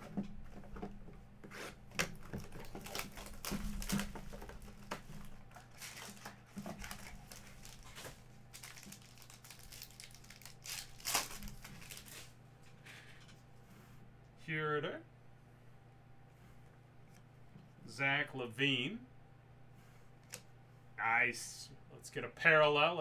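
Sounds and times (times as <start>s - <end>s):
plastic wrapping crinkling and tearing: 1.9s - 12.3s.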